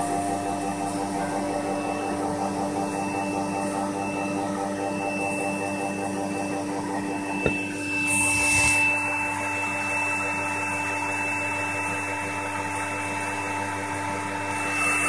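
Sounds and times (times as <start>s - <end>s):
vacuum cleaner motor running: 0.0s - 15.0s.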